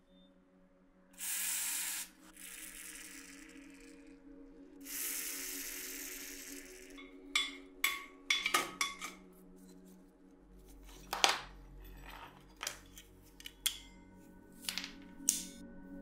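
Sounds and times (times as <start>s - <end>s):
soft background music: 0.0s - 16.0s
metal pliers clicking on metal: 12.6s - 13.9s, 14.6s - 15.6s.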